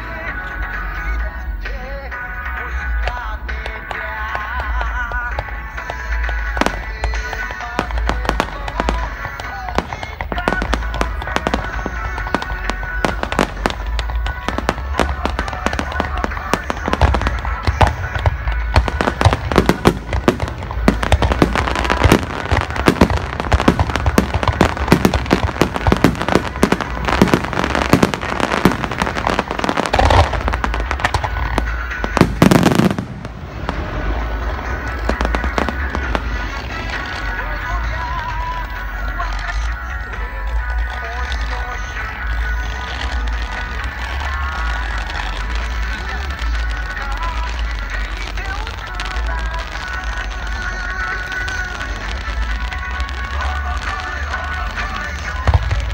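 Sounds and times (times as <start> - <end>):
fireworks bangs and crackling: 0.0 - 55.9
low rumble: 33.0 - 38.9.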